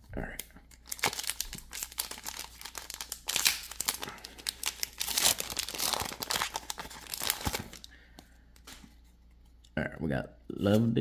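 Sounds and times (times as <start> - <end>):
foil wrapper crinkling: 0.8 - 8.0.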